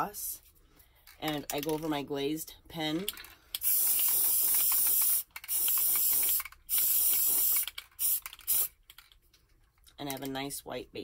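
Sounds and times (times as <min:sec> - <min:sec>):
aerosol can spraying: 0:03.6 - 0:08.8.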